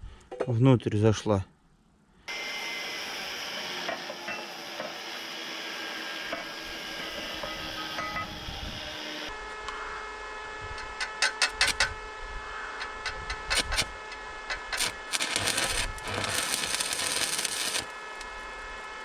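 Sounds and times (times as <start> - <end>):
welding arc crackling: 13.0 - 18.9.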